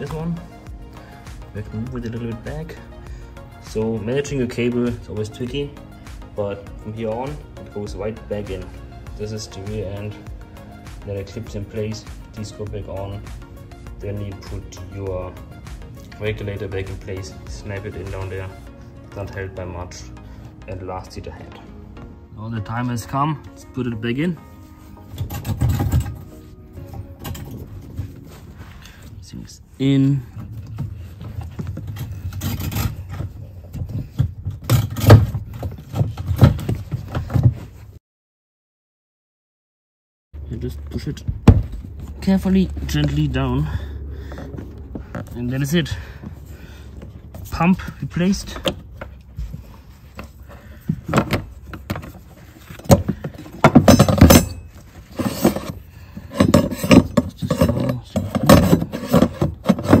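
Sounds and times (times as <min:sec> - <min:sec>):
plastic parts clicking and knocking: 0:50.2 - 0:54.5, 0:55.2 - 1:00.0.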